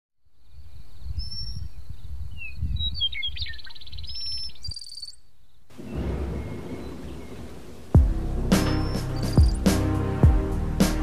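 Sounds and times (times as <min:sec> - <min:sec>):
birds singing: 0:00.4 - 0:08.0
low rumble: 0:05.8 - 0:10.8.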